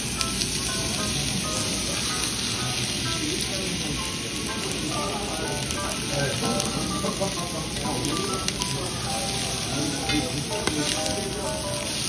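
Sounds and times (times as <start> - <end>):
background music: 0.0 - 12.0
meat sizzling on grill plate: 0.0 - 12.0.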